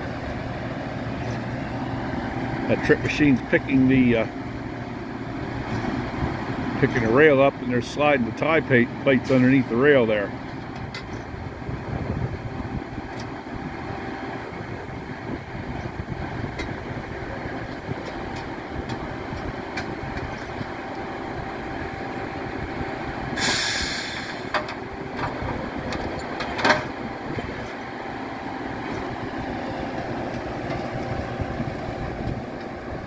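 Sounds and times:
air hiss: 23.4 - 24.5.

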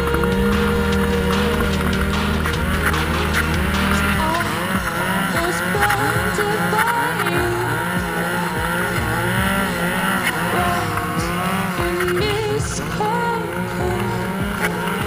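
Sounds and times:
snowmobile engine revving: 0.0 - 15.0.

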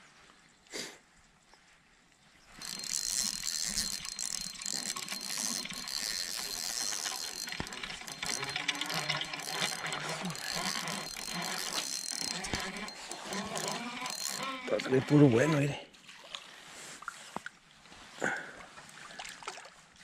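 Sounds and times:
fishing reel clicking whir: 2.6 - 15.7.

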